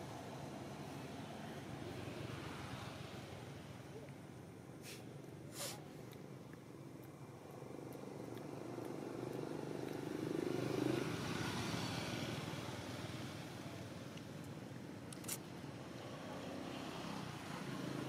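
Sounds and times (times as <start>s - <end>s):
passing engine hum: 6.0s - 14.8s.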